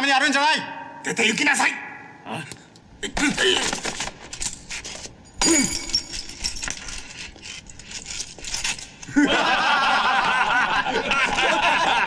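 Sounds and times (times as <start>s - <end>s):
men laughing: 9.0s - 12.0s.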